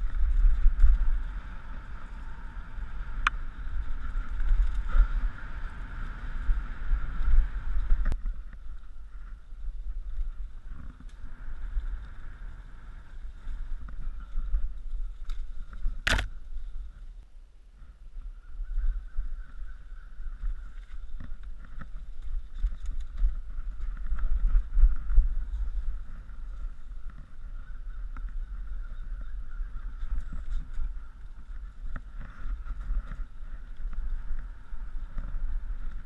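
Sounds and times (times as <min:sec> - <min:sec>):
bike rattling over ground: 0:00.0 - 0:16.8, 0:20.3 - 0:36.0
wind buffeting microphone: 0:00.0 - 0:17.2, 0:17.8 - 0:36.0
sharp short noise: 0:16.1 - 0:16.3.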